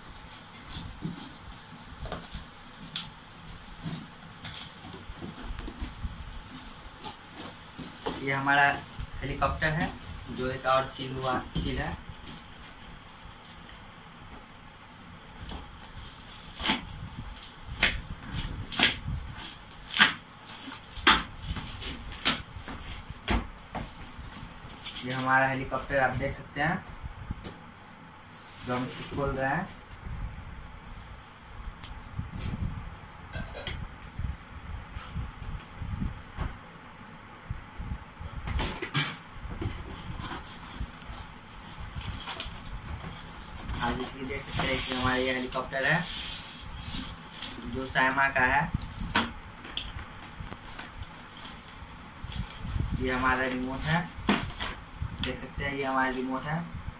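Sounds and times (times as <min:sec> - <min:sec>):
plastic wrap crackling and tearing: 0:16.3 - 0:23.4.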